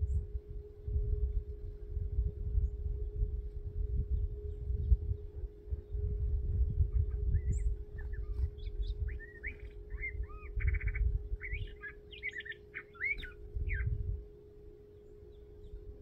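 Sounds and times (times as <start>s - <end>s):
faint steady hum: 0.0s - 16.0s
bird singing whistled phrases: 6.9s - 14.0s.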